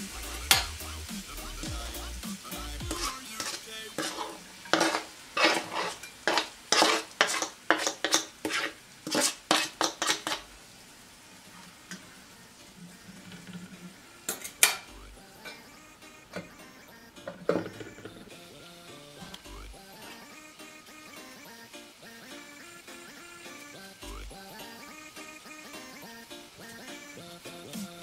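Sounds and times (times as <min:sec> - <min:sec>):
fork clinking on metal pan: 0:00.5 - 0:00.7, 0:02.9 - 0:10.4
fork scraping plastic tray: 0:03.0 - 0:10.5.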